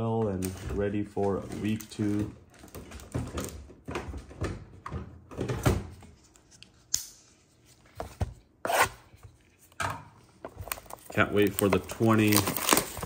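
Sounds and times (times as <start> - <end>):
box rustling: 10.4 - 13.0.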